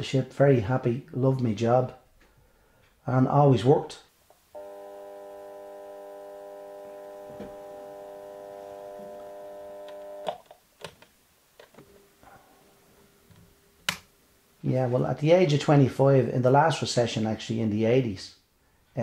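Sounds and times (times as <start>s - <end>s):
alarm clock buzzing: 4.6s - 10.4s.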